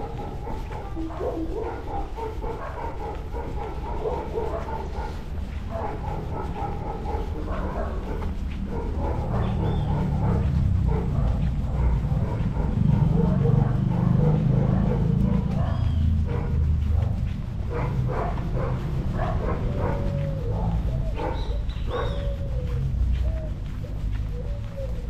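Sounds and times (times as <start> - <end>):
dog barking and yelping: 0.0 - 25.0.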